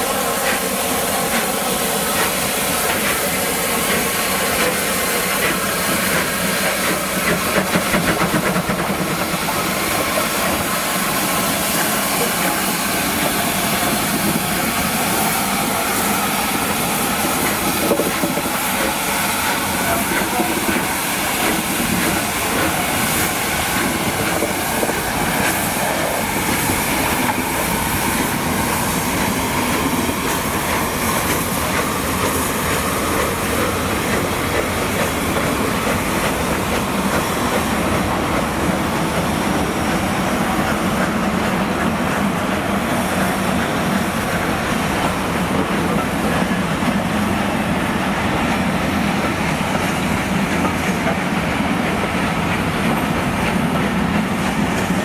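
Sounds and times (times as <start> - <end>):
train wheels clacking over rail joints: 0.0 - 47.5, 48.3 - 55.0
steam hissing from cylinder drains: 0.0 - 55.0.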